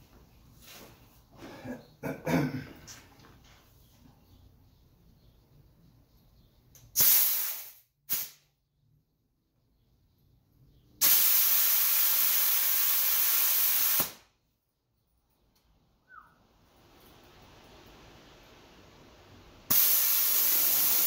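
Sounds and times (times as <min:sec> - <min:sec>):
compressed air hissing: 0:06.8 - 0:08.4, 0:11.0 - 0:14.2, 0:19.7 - 0:21.0.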